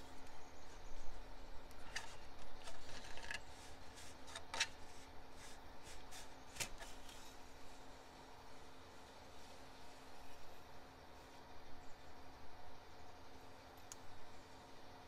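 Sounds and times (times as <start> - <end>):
plastic clicks and rubbing: 1.7 - 4.8.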